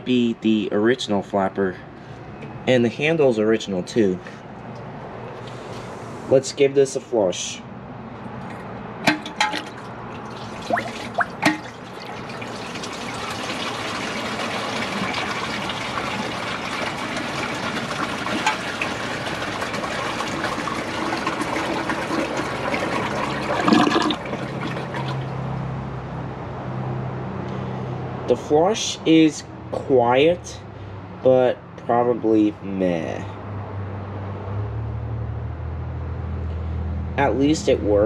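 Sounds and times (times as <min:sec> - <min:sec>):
toilet flushing: 0:09.1 - 0:25.5.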